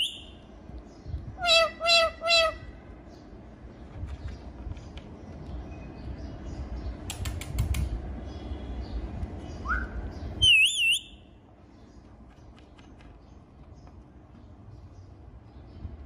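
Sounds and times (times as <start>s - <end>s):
parakeet warbling whistle: 1.4s - 2.6s
sharp clicks: 7.0s - 8.0s.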